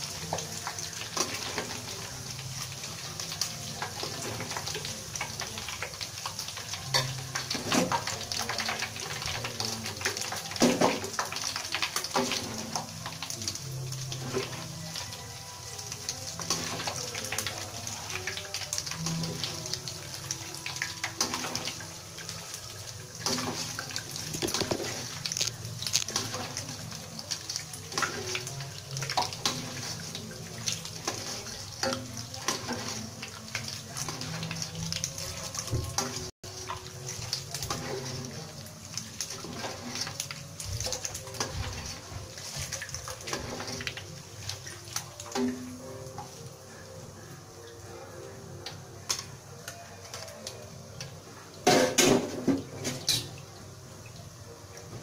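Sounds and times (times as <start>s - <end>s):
oil sizzling and crackling: 0.0s - 55.0s
metal skimmer scraping pan: 39.3s - 40.3s, 40.9s - 44.0s
ladle and strainer clattering on wok: 51.6s - 53.4s.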